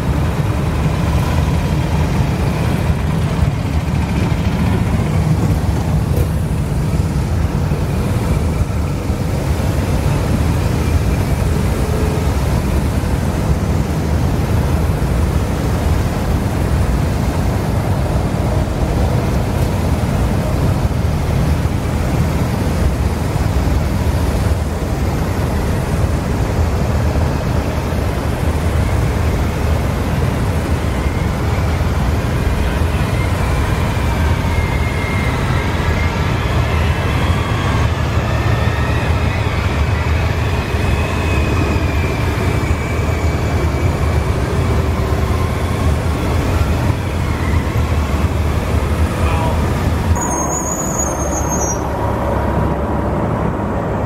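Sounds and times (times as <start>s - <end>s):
motorcycle engines rumbling: 0.0s - 54.0s.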